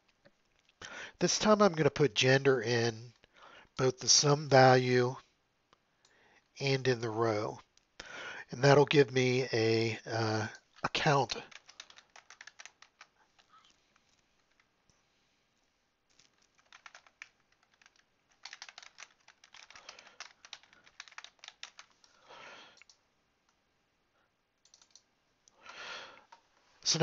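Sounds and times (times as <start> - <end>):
typing on computer keyboard: 11.4 - 13.5, 16.1 - 23.0, 24.6 - 25.0.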